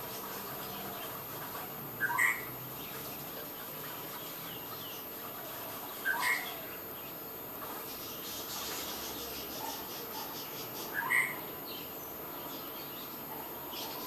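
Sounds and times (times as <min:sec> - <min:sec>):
steady background hiss: 0:00.0 - 0:14.0
loud bird calls: 0:08.3 - 0:11.8.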